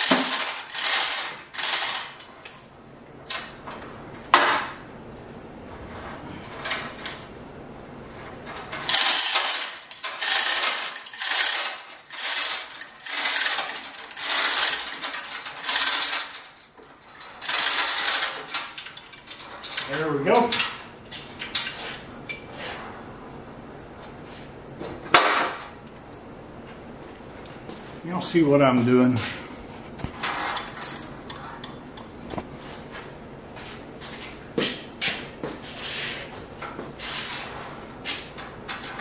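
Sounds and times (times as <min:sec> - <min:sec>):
hoist chain rattling: 0:00.0 - 0:02.3, 0:08.7 - 0:20.8.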